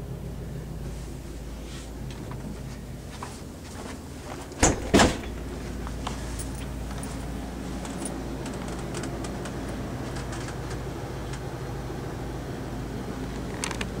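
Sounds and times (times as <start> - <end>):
low engine hum: 0.0 - 14.0
light clicks and taps: 7.8 - 11.5.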